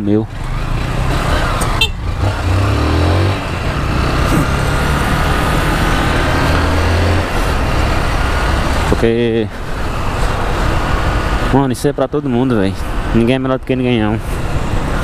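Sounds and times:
wind and road noise: 0.0 - 15.0
motorcycle engine running: 0.4 - 10.6.

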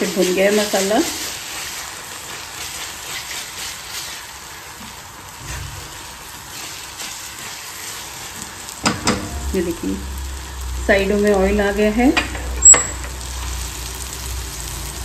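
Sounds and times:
spatula stirring and scraping pan: 0.0 - 11.4
masala sizzling in oil: 0.0 - 15.0.

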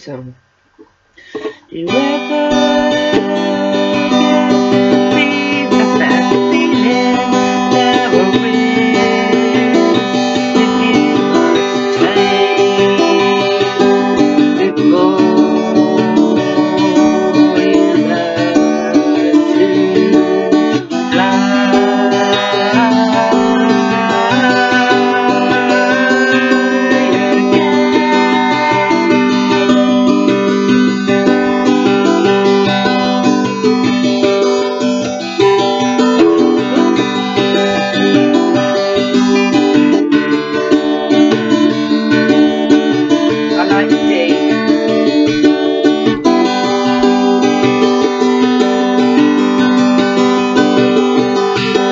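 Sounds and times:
acoustic guitar strumming: 0.8 - 51.9
woman singing: 1.3 - 33.6.

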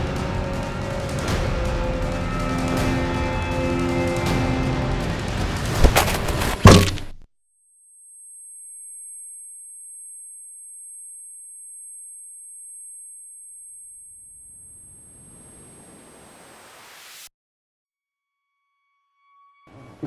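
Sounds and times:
high-pitched ringing tone: 7.5 - 15.7, 18.2 - 20.0.

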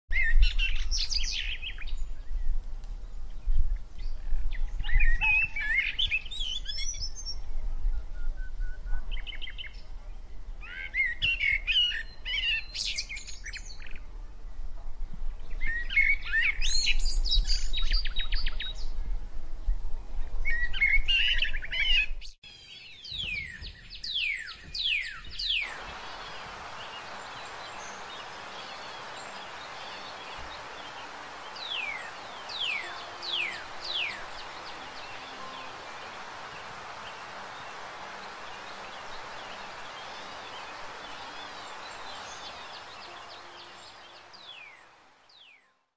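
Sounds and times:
songbirds chirping and trilling: 20.5 - 45.7.

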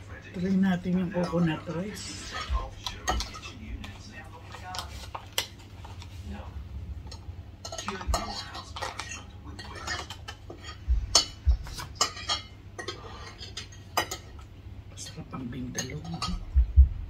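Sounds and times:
cutlery clinking on plates: 1.2 - 6.0, 7.0 - 16.5.

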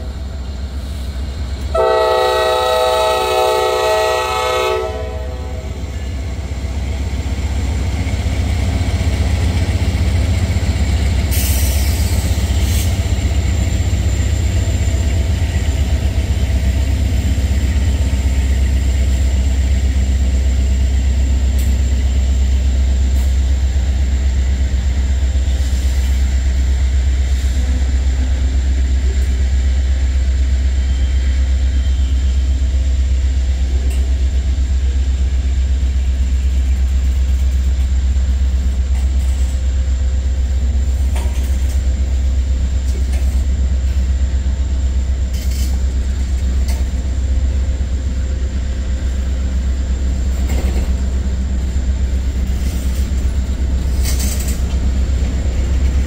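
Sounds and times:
freight train wheels rumbling on rails: 0.0 - 56.0.

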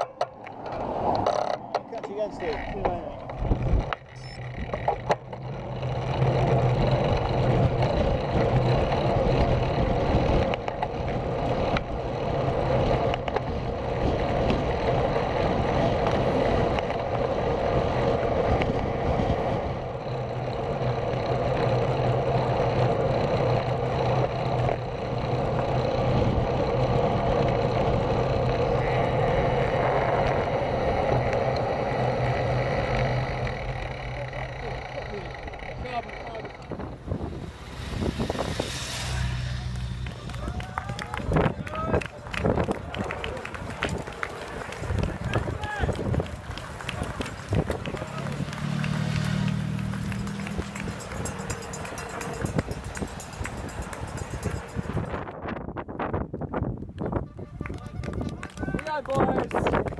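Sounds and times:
road rumble: 0.0 - 59.9
wind rush: 36.6 - 48.6, 52.3 - 59.9.

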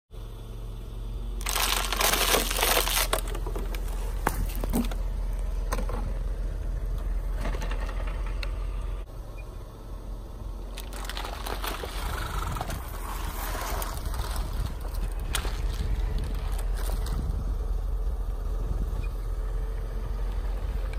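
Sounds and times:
plastic bottles crunching under tyre: 1.4 - 5.9, 10.6 - 17.5.

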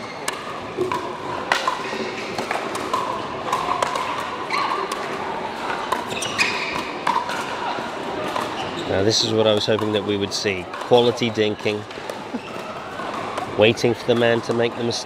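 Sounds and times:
faint murmur of voices: 0.0 - 15.0
paddles hitting plastic ball: 0.2 - 7.6, 8.2 - 8.6.

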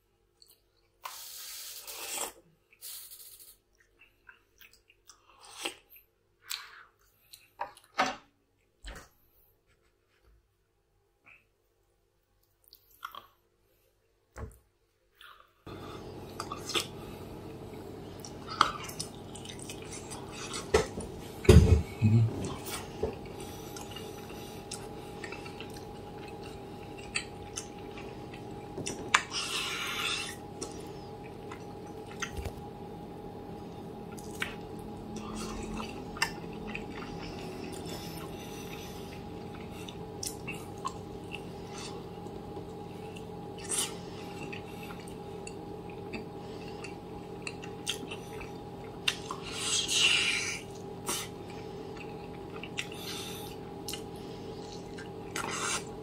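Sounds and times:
wet chewing and lip smacks: 3.7 - 7.9, 12.4 - 13.4, 22.4 - 32.7, 34.1 - 53.2, 53.8 - 55.9
steady hum: 15.7 - 56.0.

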